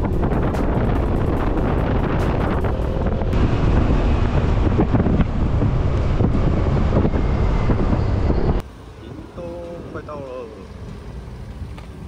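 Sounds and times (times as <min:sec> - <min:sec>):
motorcycle running noise: 0:00.0 - 0:08.6
wind buffeting microphone: 0:00.0 - 0:08.6.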